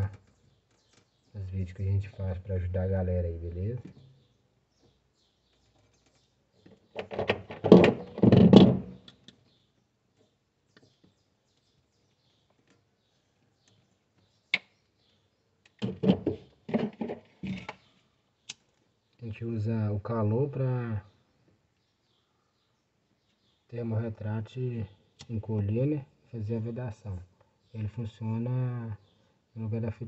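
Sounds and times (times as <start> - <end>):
hands working with wires and tools: 0.0 - 1.3, 4.8 - 19.3.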